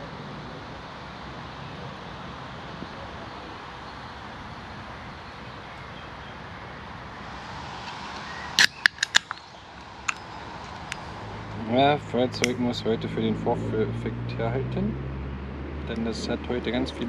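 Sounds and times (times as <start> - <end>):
steady background hiss: 0.0 - 15.2
lighter clicks: 8.6 - 9.4.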